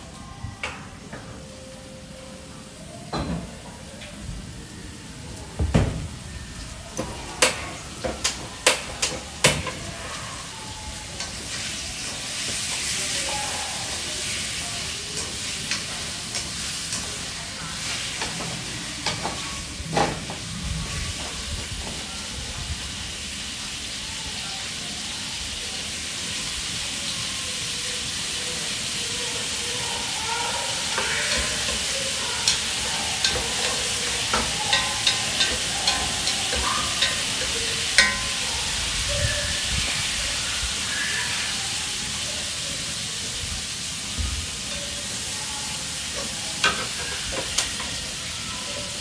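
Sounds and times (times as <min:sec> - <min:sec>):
food sizzling in a pan: 0:00.8 - 0:49.0
chopsticks ticking against pan: 0:30.9 - 0:38.5.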